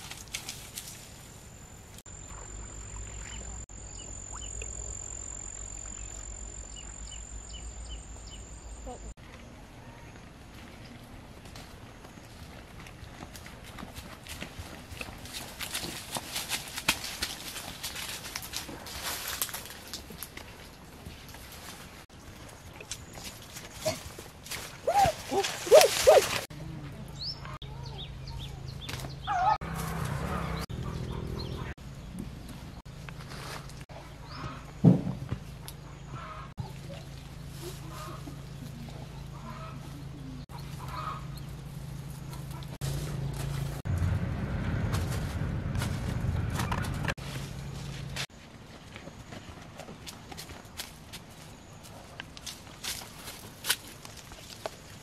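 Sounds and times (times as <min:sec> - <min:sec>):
birds chirping: 0:02.1 - 0:11.1, 0:27.0 - 0:29.6, 0:30.3 - 0:33.1
low rumble: 0:38.6 - 0:48.1.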